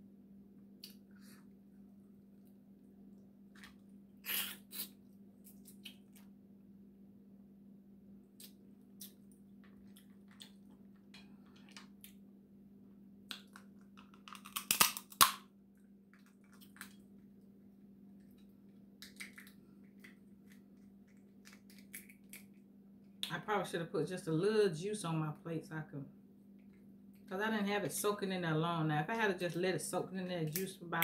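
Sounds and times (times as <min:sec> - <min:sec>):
crab shells cracking: 0:13.3 - 0:15.4, 0:16.1 - 0:17.0, 0:19.0 - 0:22.6.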